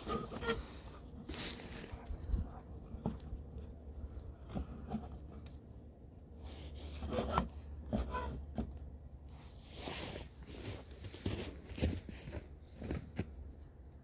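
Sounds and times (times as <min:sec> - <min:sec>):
low steady rumble: 0:00.0 - 0:14.0
footsteps crunching in snow: 0:09.6 - 0:13.4.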